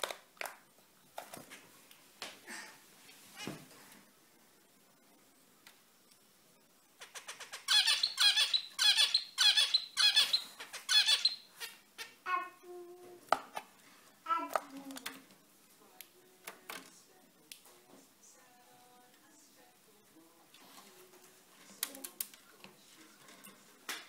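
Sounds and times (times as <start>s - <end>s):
finch squeaky calls: 7.0s - 12.2s.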